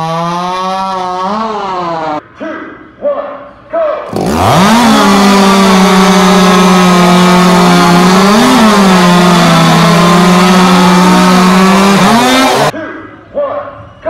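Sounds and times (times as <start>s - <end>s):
chainsaw cutting at full throttle: 0.0s - 2.2s, 4.1s - 12.7s.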